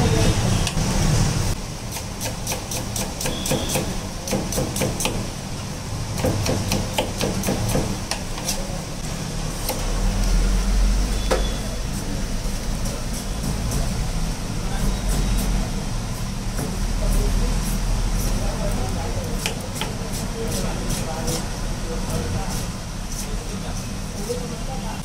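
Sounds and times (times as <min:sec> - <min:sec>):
knife chopping on wooden board: 0:01.9 - 0:05.3, 0:06.2 - 0:08.6, 0:19.4 - 0:20.2.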